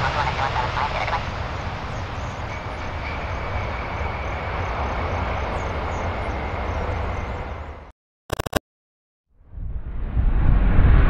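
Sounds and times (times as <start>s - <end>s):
jet engines roaring: 0.0s - 7.8s.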